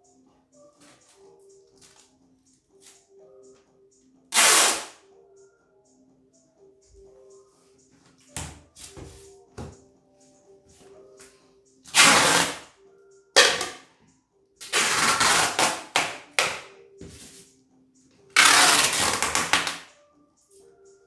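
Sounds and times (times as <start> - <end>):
packing tape pulled off roll: 4.4 - 5.0, 11.9 - 12.6, 14.6 - 16.1, 18.4 - 19.8.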